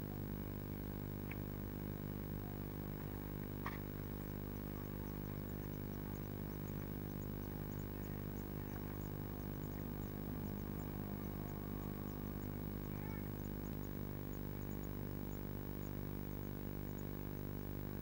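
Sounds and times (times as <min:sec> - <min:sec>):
low electrical hum: 0:00.0 - 0:18.0
nestlings cheeping: 0:03.9 - 0:18.0.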